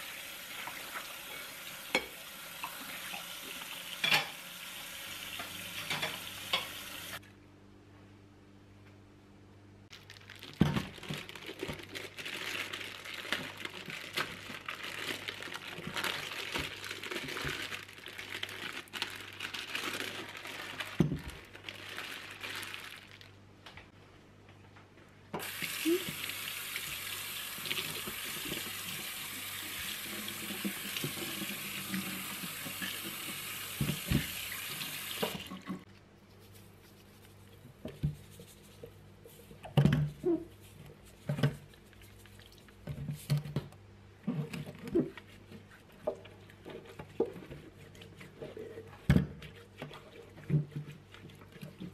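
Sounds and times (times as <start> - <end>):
tap water running into sink: 25.4 - 35.8.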